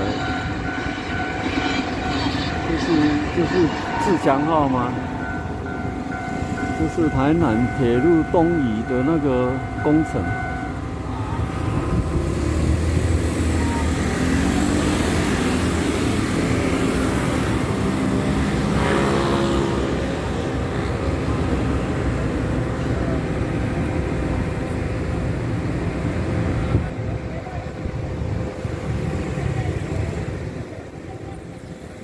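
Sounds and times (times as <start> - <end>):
scooters and cars driving past: 10.8 - 32.0
loud engine passing close: 10.9 - 32.0.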